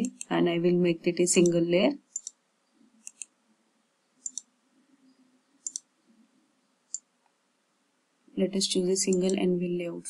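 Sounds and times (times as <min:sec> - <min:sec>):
mouse double clicks: 0:04.2 - 0:04.5, 0:05.6 - 0:05.8.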